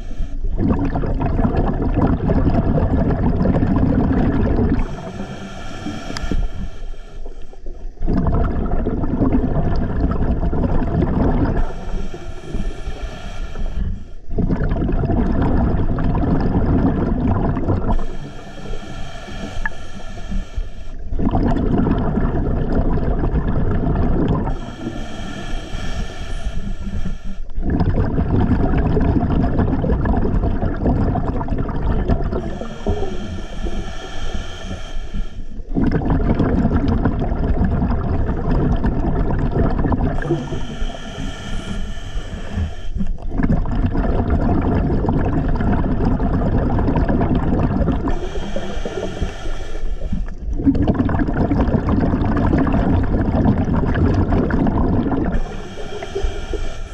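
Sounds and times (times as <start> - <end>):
regulator inhalation hiss: 0.0 - 0.5, 4.8 - 7.8, 11.6 - 14.3, 17.9 - 21.1, 24.5 - 27.6, 32.4 - 35.7, 40.2 - 43.2, 48.0 - 50.4, 55.4 - 56.9
exhaled bubbles rumbling: 0.0 - 56.9.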